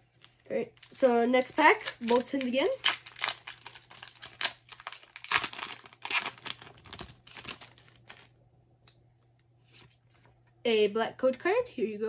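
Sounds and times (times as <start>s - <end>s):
foil wrapper crinkling and tearing: 0.0s - 8.3s.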